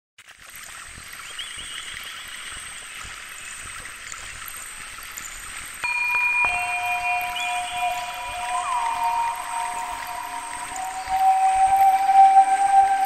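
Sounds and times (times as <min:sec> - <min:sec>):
running water: 0:00.3 - 0:13.0
synthesizer tones: 0:05.8 - 0:13.0
thin high tone: 0:05.8 - 0:13.0.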